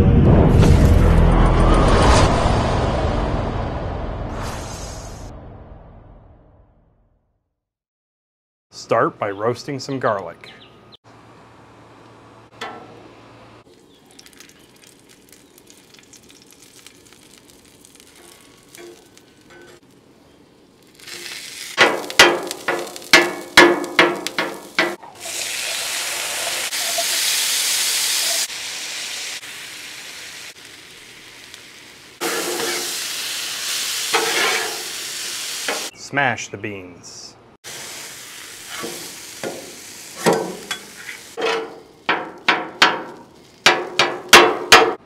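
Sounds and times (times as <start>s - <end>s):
beans sizzling on griddle: 13.6s - 35.9s, 37.6s - 45.0s
metal spatula scraping griddle: 32.2s - 33.0s, 34.1s - 35.0s, 38.6s - 39.6s, 40.2s - 43.2s.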